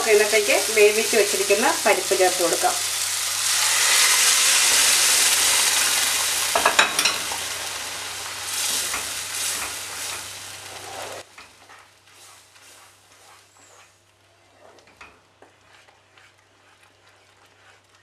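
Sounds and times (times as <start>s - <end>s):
food sizzling in a pan: 0.0s - 13.8s.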